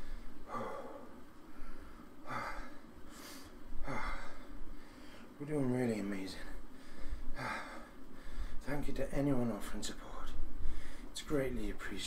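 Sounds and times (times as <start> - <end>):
man breathing hard: 0.0 - 5.4, 6.4 - 8.6, 10.6 - 11.2.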